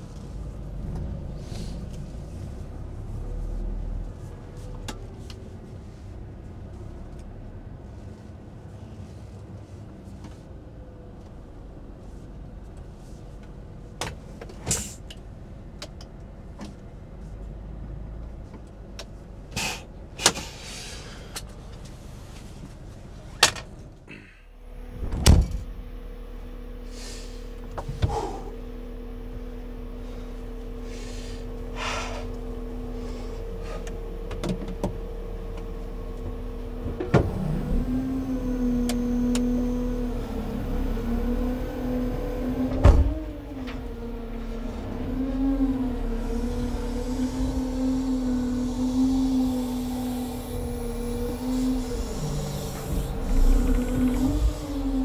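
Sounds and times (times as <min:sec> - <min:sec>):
hydraulic pump hum: 0:24.2 - 0:55.0.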